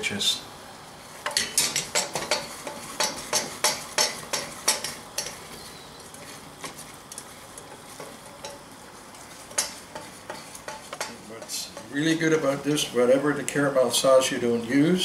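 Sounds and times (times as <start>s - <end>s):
caramel sizzling: 0.0s - 15.0s
wooden spatula scraping saucepan: 7.6s - 12.6s.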